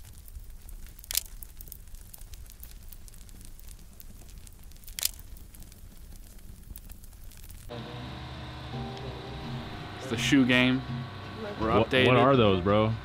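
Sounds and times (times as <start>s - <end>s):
loud pop from fire: 0.0s - 7.7s
wood fire crackling: 0.0s - 13.0s.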